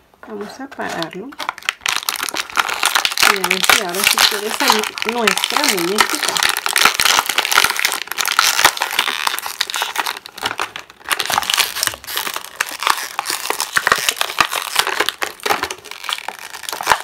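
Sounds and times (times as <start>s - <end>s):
plastic packaging crinkling: 0.2s - 17.0s.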